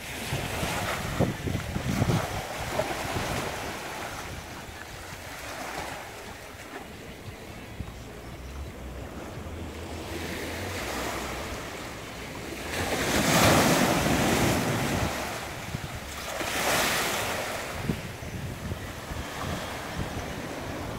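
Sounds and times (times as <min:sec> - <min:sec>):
wind on microphone: 0:00.0 - 0:06.2, 0:12.8 - 0:20.9
small waves washing on sand: 0:00.0 - 0:08.2, 0:09.1 - 0:20.9.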